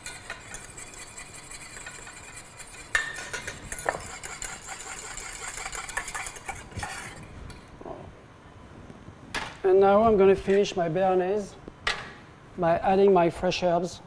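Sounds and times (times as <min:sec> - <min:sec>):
whisk clattering in metal saucepan: 0:00.0 - 0:07.2.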